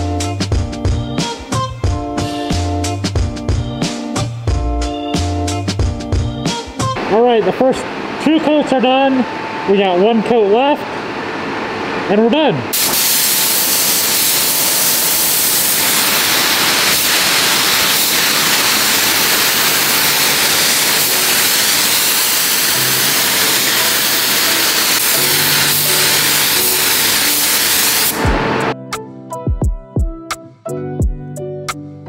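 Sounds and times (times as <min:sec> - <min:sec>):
spray gun hissing: 0:12.7 - 0:28.8.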